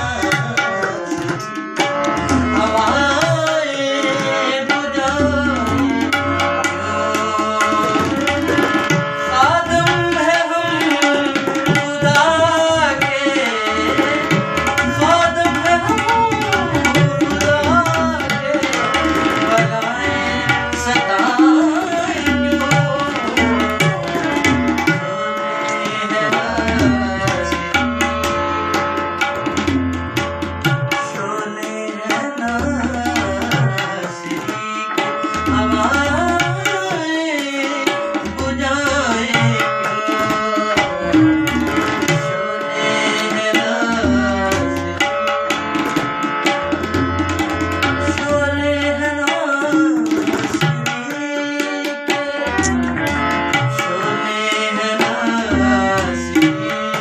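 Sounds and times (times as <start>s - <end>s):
sustained harmonium notes: 0.0s - 57.0s
tabla playing fast rhythm: 0.0s - 57.0s.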